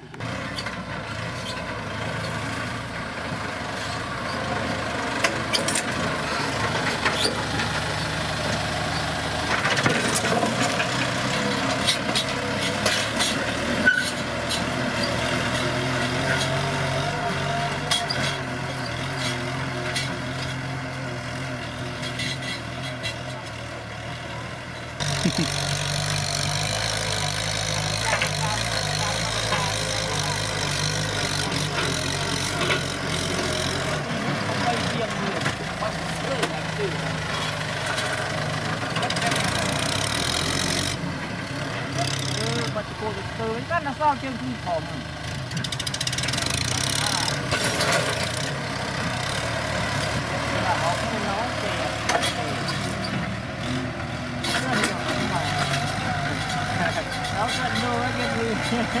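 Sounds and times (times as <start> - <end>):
tractor diesel engine running: 0.0 - 59.0
plough clanks and knocks: 9.5 - 14.2.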